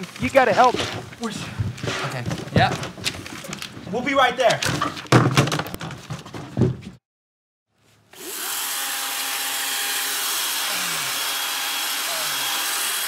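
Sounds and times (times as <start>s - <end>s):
knocks and scuffling: 0.0s - 7.0s
electric chainsaw whirring: 8.1s - 13.0s.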